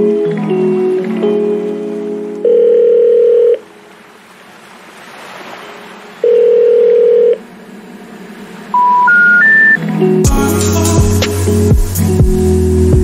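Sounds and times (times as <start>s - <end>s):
rising run of tones: 7.5s - 10.2s
electronic beeps: 8.7s - 9.8s.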